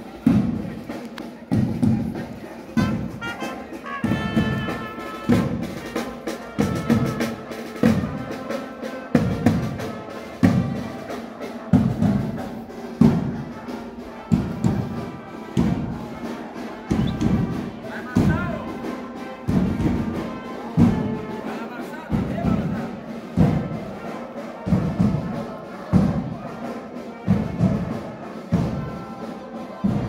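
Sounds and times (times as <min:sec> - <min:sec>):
slow drum beat: 0:00.1 - 0:08.5, 0:09.2 - 0:21.4.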